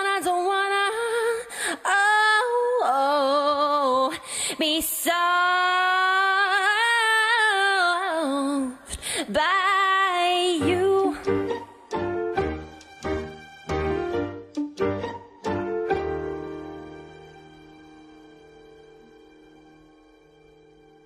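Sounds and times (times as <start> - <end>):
woman singing with vibrato: 0.0 - 11.8.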